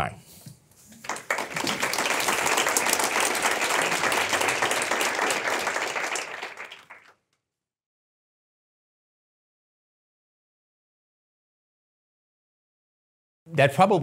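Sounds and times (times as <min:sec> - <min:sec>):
audience applauding: 0:00.9 - 0:07.2.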